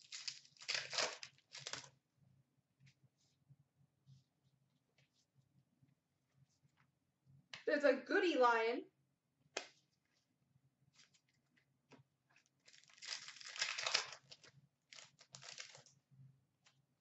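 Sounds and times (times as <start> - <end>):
wrapper tearing and crinkling: 0.0 - 1.9, 12.6 - 15.9.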